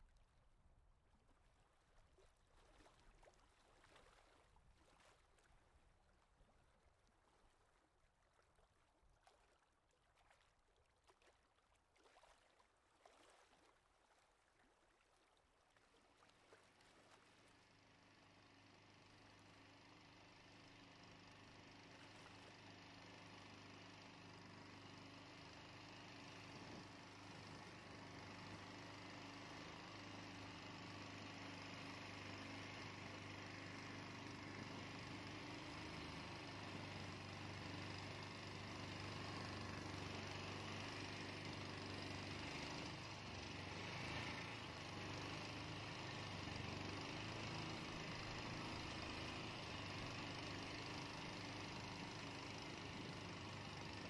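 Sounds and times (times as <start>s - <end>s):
faint motor hum: 11.8s - 54.0s.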